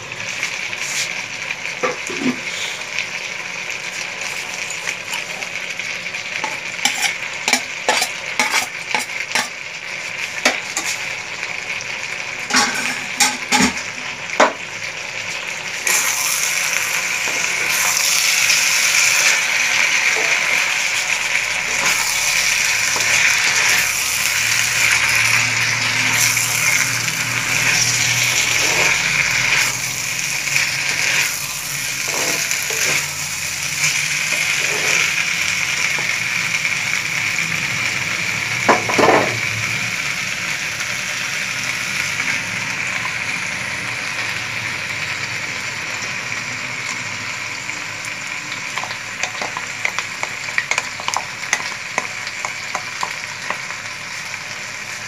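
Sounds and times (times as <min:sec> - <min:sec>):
vegetables sizzling in oil: 0:00.0 - 0:55.0
wooden spatula scraping: 0:06.8 - 0:09.5.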